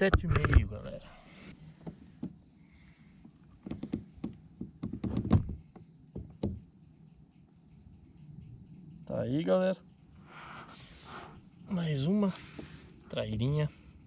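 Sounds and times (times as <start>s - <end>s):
night insect chorus chirring: 0.0s - 14.0s
fish knocking and thumping: 3.6s - 6.6s.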